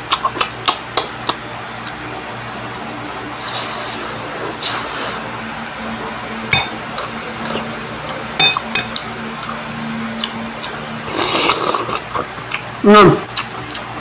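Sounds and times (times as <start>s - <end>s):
steady low hum: 0.0s - 14.0s
metal spoon clinking on ceramic bowl: 6.5s - 6.8s, 8.4s - 9.0s.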